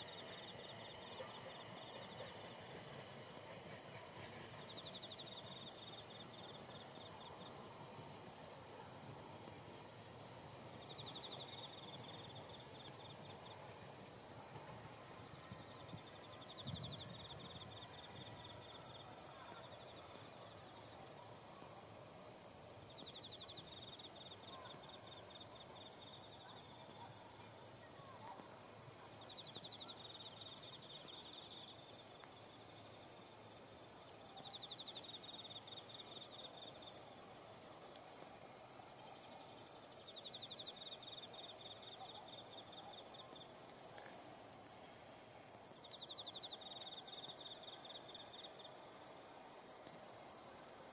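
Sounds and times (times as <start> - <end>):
insect steady high trill: 0.0 - 50.9
insect pulsed trill: 29.1 - 37.6, 38.9 - 43.8, 44.5 - 49.0.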